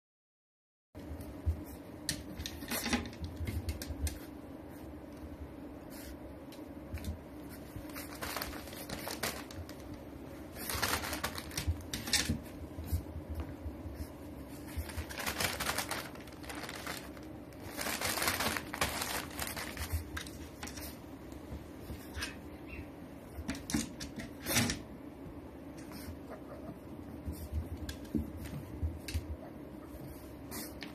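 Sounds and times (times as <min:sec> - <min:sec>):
newspaper rustling: 0:07.8 - 0:12.2, 0:14.7 - 0:21.0.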